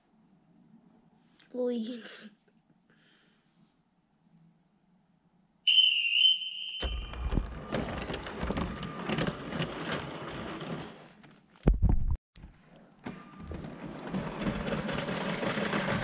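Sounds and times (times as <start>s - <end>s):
shrill whistle with warble: 5.6s - 7.7s
toy train motor rattling on track: 14.3s - 16.0s.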